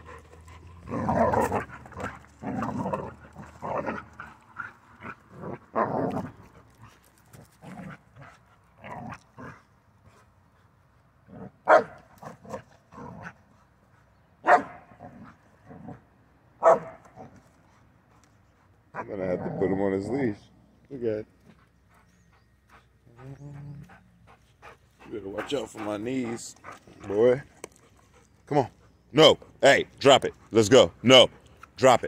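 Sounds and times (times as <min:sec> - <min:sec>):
puppy barking: 0:11.7 - 0:12.0, 0:14.4 - 0:14.8, 0:16.6 - 0:17.0.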